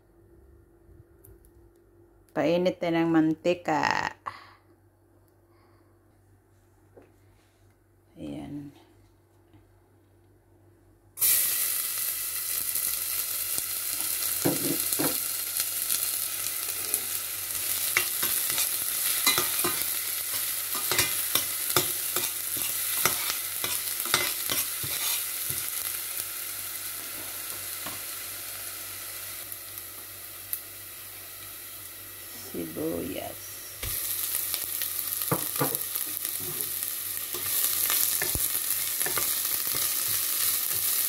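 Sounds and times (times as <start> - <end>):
garlic sizzling in hot oil: 11.2 - 41.0.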